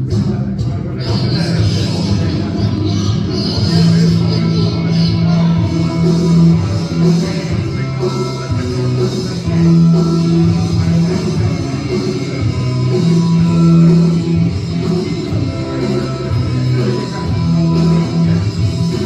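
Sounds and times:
guitar: 0.0s - 19.0s
rock music: 0.0s - 19.0s
steady bass line: 0.0s - 19.0s.

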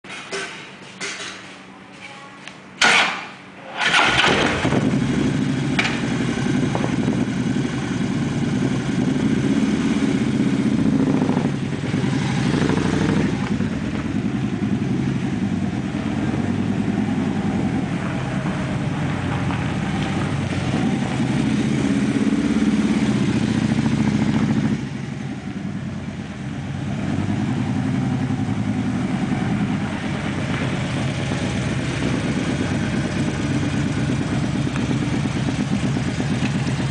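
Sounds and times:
motorcycle engine cranking: 2.8s - 6.7s
motorcycle engine running: 3.8s - 36.9s.

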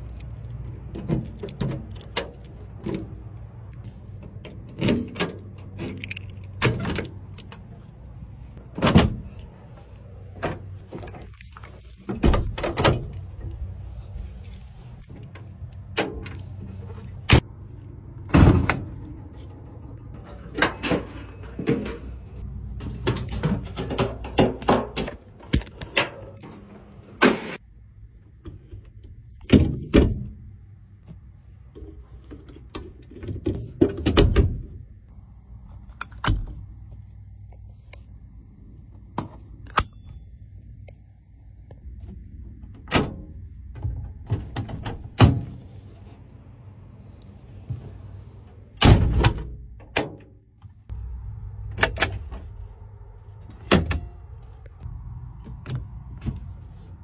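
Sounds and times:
metal latch clicks: 0.0s - 3.4s, 4.2s - 7.7s
handle clanks: 4.2s - 8.1s.

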